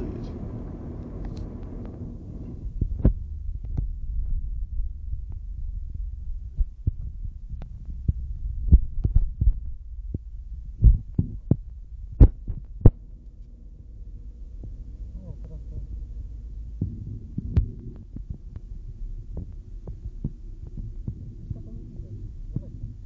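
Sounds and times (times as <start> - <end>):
car interior rumble: 0.0 - 23.0
sharp knocks and thumps: 10.8 - 13.0.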